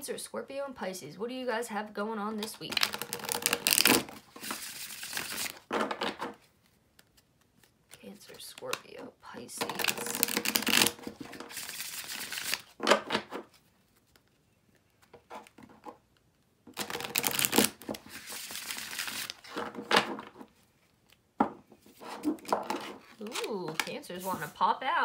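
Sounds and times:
cards riffling and rustling: 2.4 - 21.2
cards tapping: 16.7 - 20.3.

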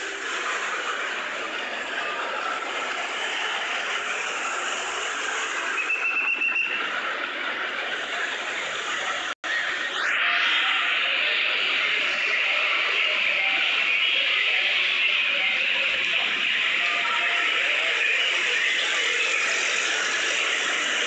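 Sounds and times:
traffic noise: 0.0 - 9.4, 11.0 - 21.0
rising whistle-like glide: 5.4 - 7.0.

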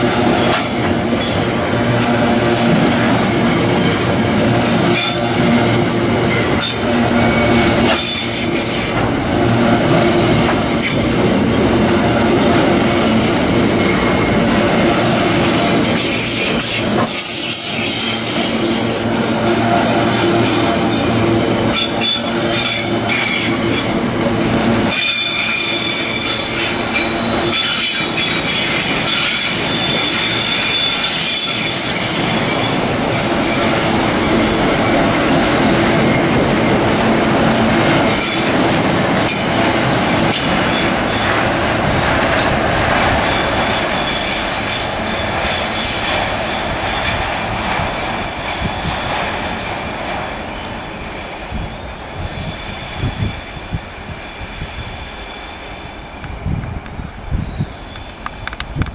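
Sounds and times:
train wheels rumbling on rail: 0.0 - 58.9
high-pitched wheel squeal: 24.9 - 35.1, 43.0 - 47.5.

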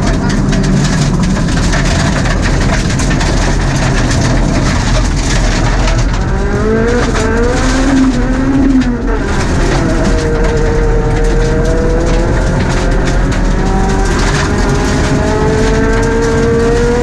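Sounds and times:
car engine accelerating: 0.0 - 17.0
road and gravel noise: 0.0 - 17.0.

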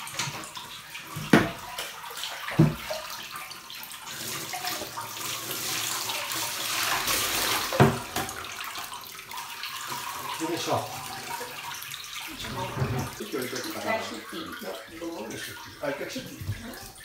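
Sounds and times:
water pouring from a basin: 0.0 - 17.0
water splashing on bath: 0.0 - 17.0.

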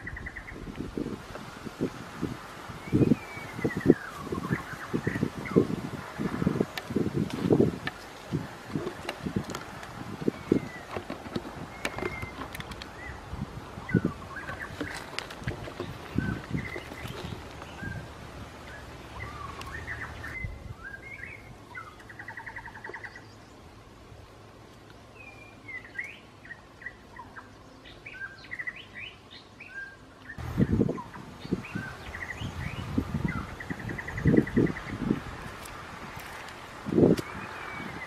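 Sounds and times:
birds chirping: 0.0 - 38.0
whistled bird notes: 2.8 - 5.7, 18.7 - 23.4.

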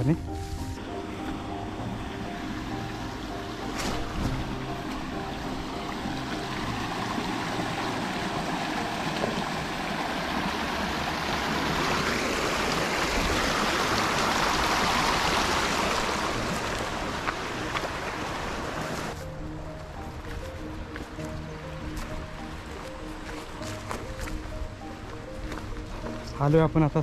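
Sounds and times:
stream splashing over stones: 2.9 - 19.2.

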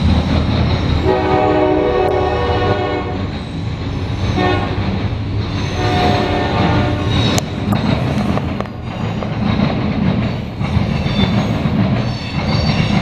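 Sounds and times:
train rumbling by: 0.0 - 13.0
locomotive horn blasts: 1.0 - 3.2, 4.4 - 4.8, 5.7 - 7.2.

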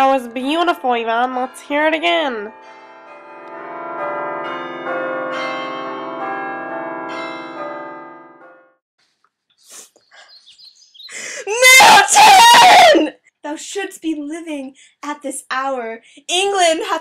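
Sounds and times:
peal of bells ringing: 0.4 - 8.7.

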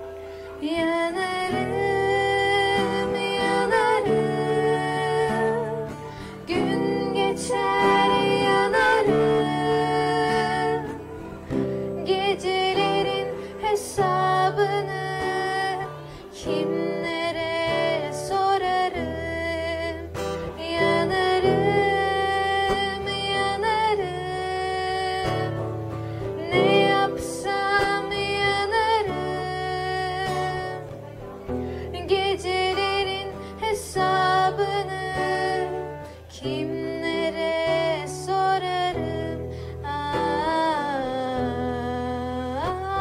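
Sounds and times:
acoustic guitar: 0.0 - 43.0
girl singing: 0.0 - 43.0.

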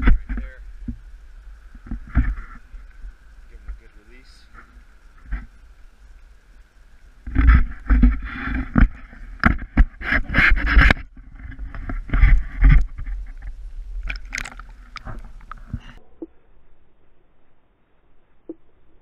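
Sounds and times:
handling knocks and scrapes: 7.2 - 16.0
water splashing and sloshing: 7.2 - 17.6.

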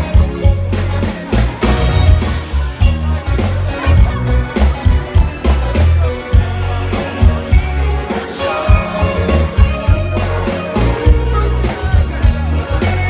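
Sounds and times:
electric bass: 0.0 - 13.0
keyboards: 0.0 - 13.0
drum beat: 0.1 - 13.0
people singing: 6.3 - 13.0.

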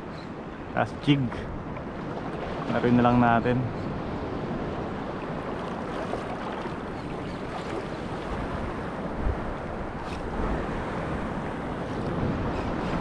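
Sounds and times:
sea water washing over reef: 4.9 - 12.3
wind noise on microphone: 7.5 - 13.0.

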